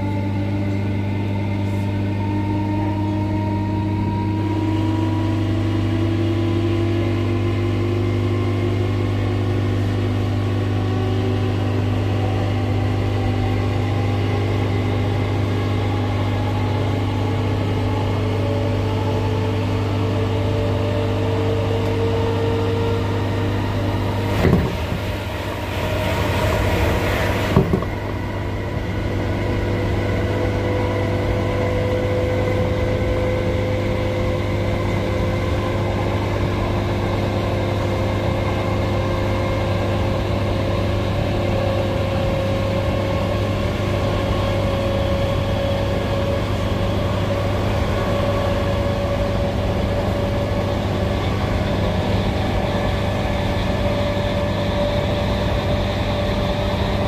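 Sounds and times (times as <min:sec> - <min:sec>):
rush of louder noise: 0:22.6 - 0:43.8
knock: 0:24.4 - 0:25.0, 0:27.5 - 0:27.9.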